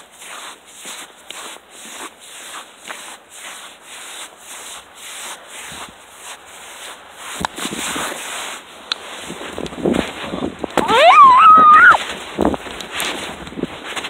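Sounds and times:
boots crunching through snow: 0:00.0 - 0:10.2.

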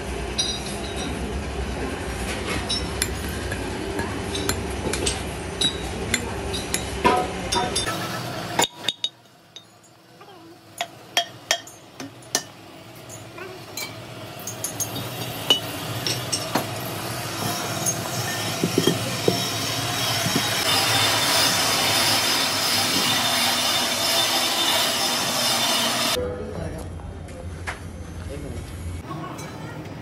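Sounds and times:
metal clinking and knocking: 0:10.8 - 0:16.8, 0:17.4 - 0:19.6
machine noise: 0:12.9 - 0:26.2.

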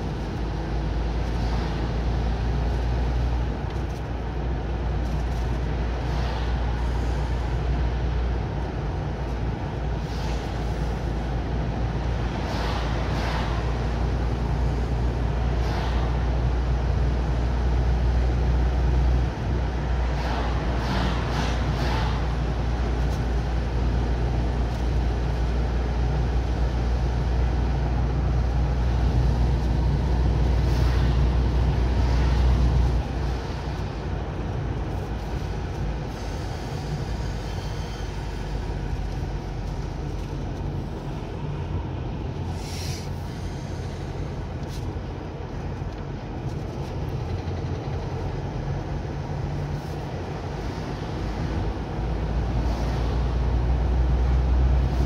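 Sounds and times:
car engine and tyre rumble: 0:00.0 - 0:55.0
brief hisses: 0:42.5 - 0:44.0.

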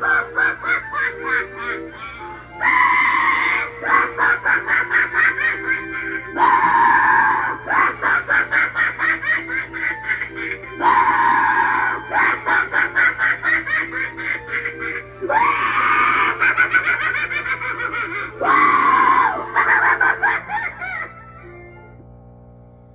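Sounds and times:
carnival-style music: 0:00.0 - 0:22.0.

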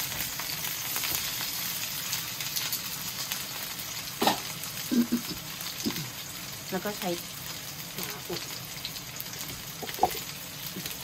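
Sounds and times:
chicken sizzling in a frying pan: 0:00.0 - 0:11.0.

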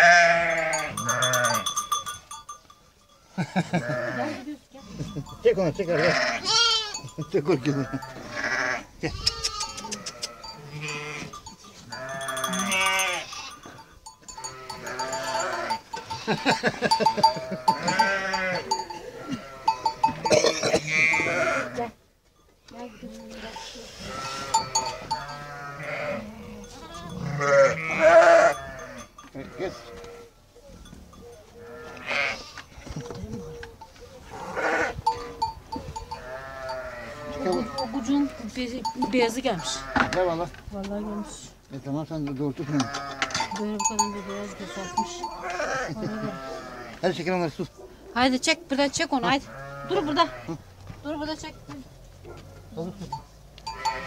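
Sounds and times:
sheep bleating: 0:00.0 - 0:02.0, 0:03.6 - 0:04.6, 0:05.8 - 0:22.0, 0:23.1 - 0:30.3, 0:31.6 - 0:32.6, 0:34.3 - 0:40.3, 0:42.6 - 0:47.2, 0:49.2 - 0:50.6, 0:53.7 - 0:54.0
sheep bells clanking: 0:00.0 - 0:32.4, 0:33.2 - 0:40.0, 0:42.2 - 0:47.2, 0:52.9 - 0:54.0.

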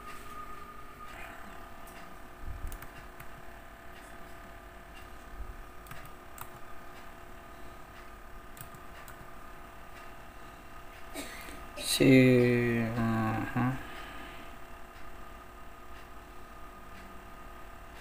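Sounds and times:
low electrical hum: 0:00.0 - 0:18.0
laptop keys and mouse clicking: 0:01.9 - 0:03.4, 0:05.8 - 0:06.7, 0:08.5 - 0:09.3.

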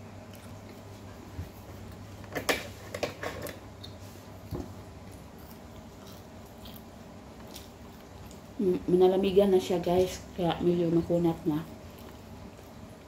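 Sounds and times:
person chewing bread: 0:00.0 - 0:02.3, 0:03.5 - 0:08.6, 0:11.7 - 0:13.0
steady low hum: 0:00.0 - 0:13.0.

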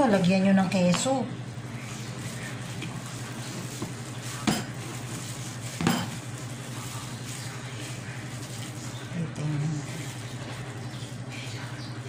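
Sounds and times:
hands kneading meat mixture: 0:00.0 - 0:12.0
steady low hum: 0:00.0 - 0:12.0
mixing bowl knocks: 0:03.8 - 0:04.8, 0:05.8 - 0:06.2.

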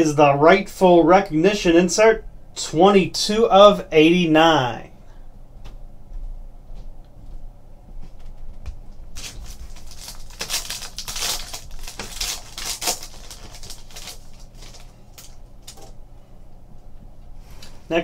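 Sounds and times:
foil wrapper tearing and crinkling: 0:09.2 - 0:15.9.

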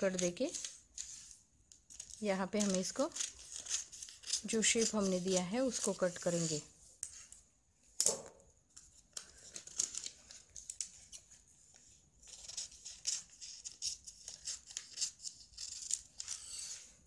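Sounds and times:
paper rustling: 0:00.0 - 0:07.4, 0:08.8 - 0:16.9
scissors cutting newspaper: 0:01.9 - 0:06.6.

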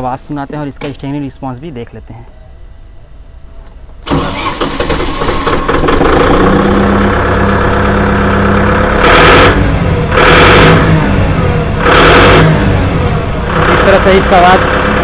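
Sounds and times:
tractor engine revving: 0:04.0 - 0:15.0
tractor engine starting and idling: 0:04.0 - 0:15.0.

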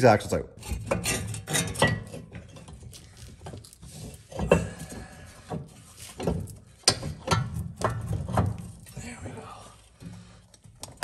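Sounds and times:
metal knocks and clunks: 0:04.2 - 0:08.8.

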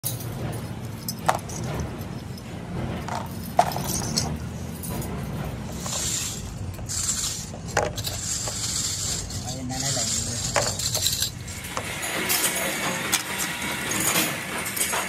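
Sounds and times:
filter parts clicking and clinking: 0:00.0 - 0:15.0.

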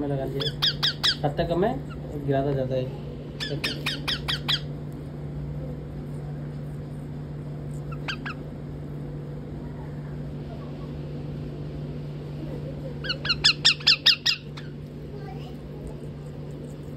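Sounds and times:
steady low hum: 0:00.0 - 0:16.9
parakeet squawking: 0:00.2 - 0:02.3, 0:03.3 - 0:04.8, 0:07.8 - 0:08.6, 0:13.0 - 0:14.9.

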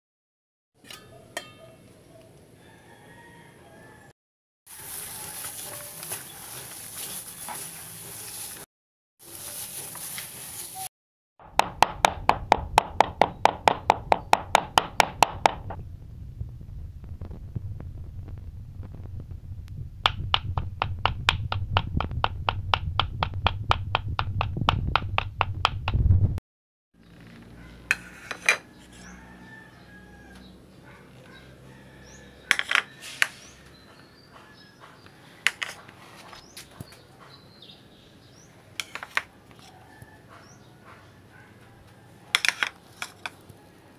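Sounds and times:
cleaver chopping meat on wood: 0:11.4 - 0:15.8, 0:20.1 - 0:26.0.

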